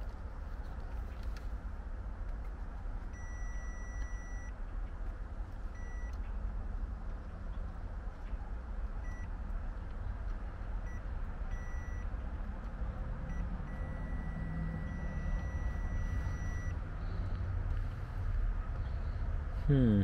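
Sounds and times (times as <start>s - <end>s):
continuity beeper beeping: 11.6s - 12.0s, 13.3s - 16.8s.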